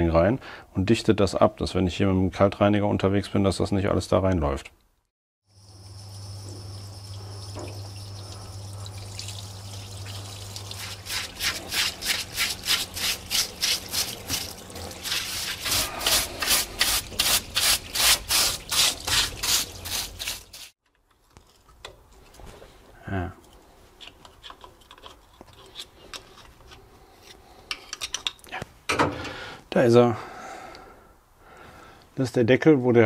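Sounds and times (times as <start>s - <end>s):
brush scrubbing metal: 10.7s - 20.8s.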